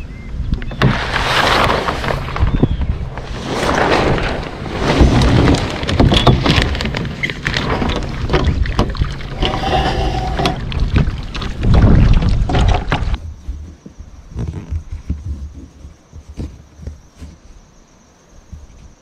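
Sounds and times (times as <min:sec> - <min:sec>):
wind buffeting microphone: 0:01.9 - 0:16.5
knocks and clatter of fittings: 0:05.0 - 0:17.0.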